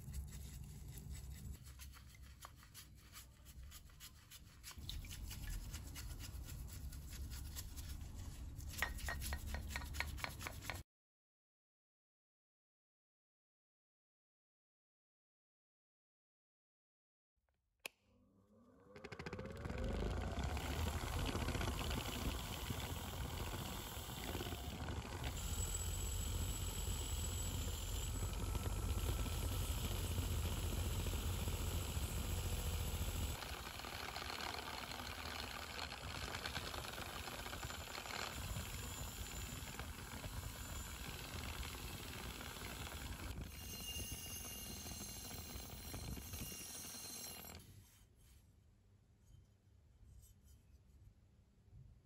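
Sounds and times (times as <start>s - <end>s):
bench grinder running: 19.0s - 47.6s
metal grinding on wheel: 33.5s - 47.6s.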